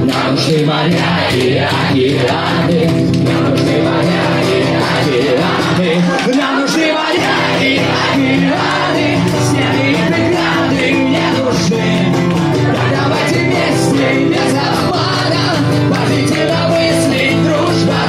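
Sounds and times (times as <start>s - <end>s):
acoustic guitar: 0.0s - 18.0s
live rock band: 0.0s - 18.0s
person singing: 0.0s - 18.0s.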